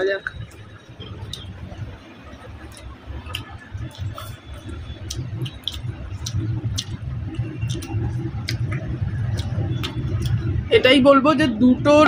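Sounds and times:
low background rumble: 0.0 - 12.0
wet mouth clicks and smacks: 0.2 - 1.9, 2.6 - 10.6
person chewing food: 0.2 - 10.6.

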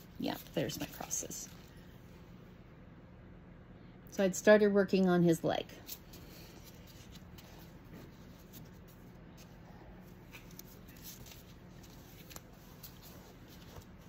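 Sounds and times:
fabric rustling: 5.9 - 14.0.

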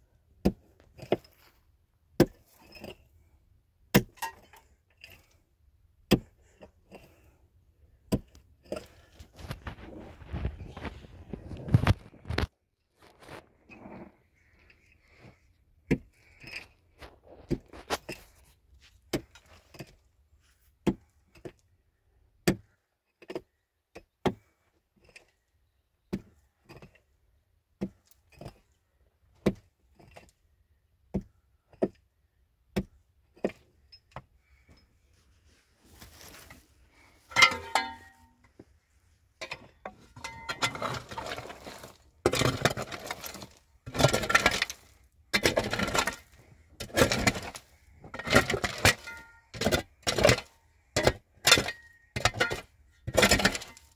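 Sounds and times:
hand tool striking hard ground: 3.9 - 4.4, 37.3 - 38.3, 39.4 - 53.9
rough scraping strokes with clatter: 8.2 - 20.7, 35.0 - 38.4, 39.4 - 53.9.

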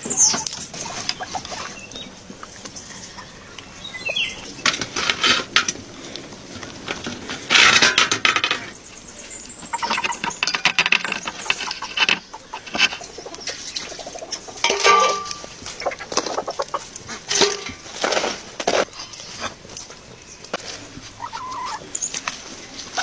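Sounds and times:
rods poking burning wood: 9.4 - 21.2.

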